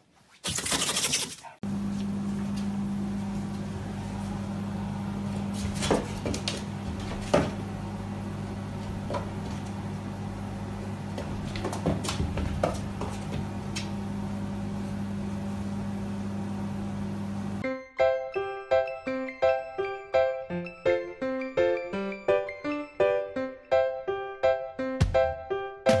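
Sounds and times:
steady low hum: 0:01.6 - 0:17.6.

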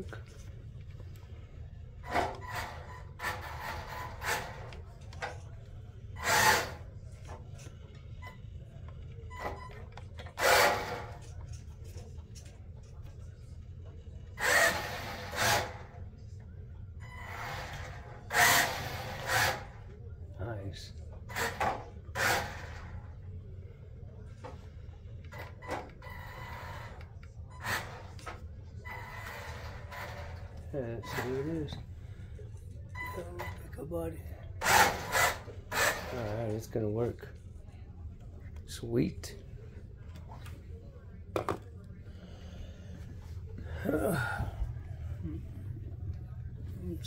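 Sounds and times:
faint low hum: 0:00.0 - 0:47.0
toy car motor whirring: 0:02.1 - 0:04.8, 0:06.2 - 0:06.9, 0:10.2 - 0:11.3, 0:14.3 - 0:15.9, 0:17.2 - 0:19.9, 0:21.3 - 0:23.0, 0:25.4 - 0:31.8, 0:34.6 - 0:36.6.

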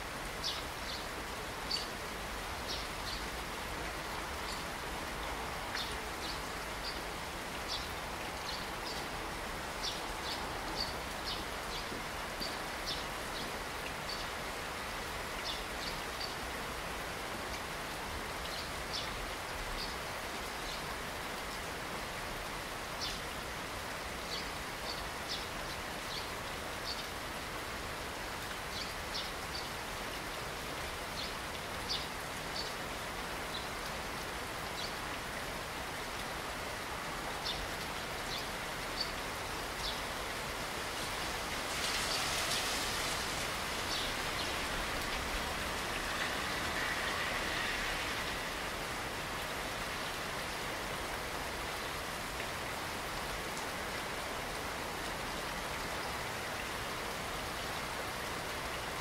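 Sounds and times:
steady rain falling: 0:00.0 - 0:59.0
brief rush of rain: 0:39.9 - 0:50.9.

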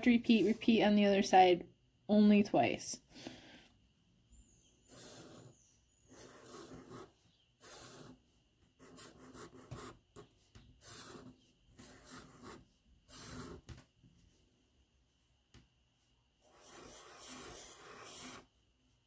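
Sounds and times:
marker rubbing on paper: 0:00.0 - 0:00.9, 0:04.8 - 0:13.8, 0:16.4 - 0:18.5.

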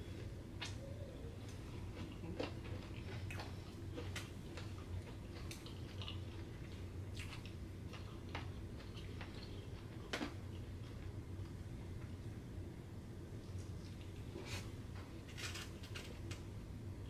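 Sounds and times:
steady low hum: 0:00.0 - 0:17.0
chewing clicks and smacks: 0:01.4 - 0:11.6.

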